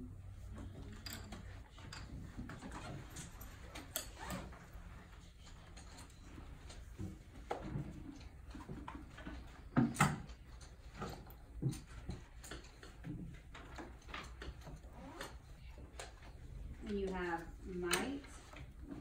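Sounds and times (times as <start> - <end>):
knocks and taps at desks: 8.6 - 10.3.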